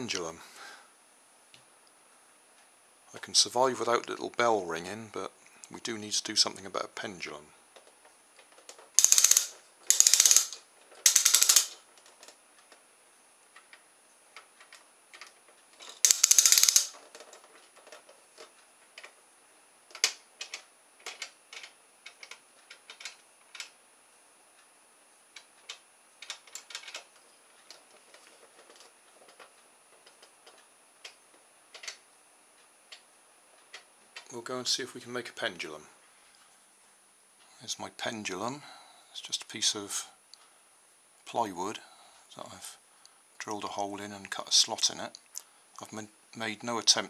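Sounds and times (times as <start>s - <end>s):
plastic parts clicking and tapping: 7.8s - 12.8s, 14.4s - 19.2s, 19.9s - 23.8s, 25.4s - 32.0s
clockwork mechanism ratcheting: 9.0s - 11.8s, 15.8s - 17.0s.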